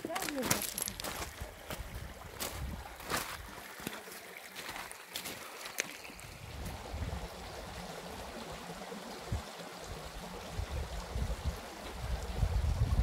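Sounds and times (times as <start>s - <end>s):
stream running over gravel: 0.0s - 13.0s
wind rumble on microphone: 1.7s - 3.1s, 6.2s - 7.8s, 9.2s - 13.0s.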